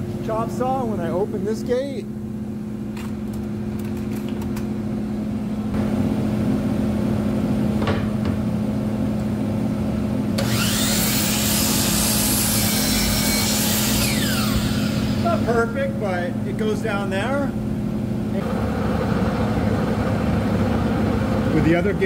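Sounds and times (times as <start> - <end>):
dust collector running: 9.3 - 17.6, 18.2 - 22.0
miter saw whirring: 10.4 - 15.5.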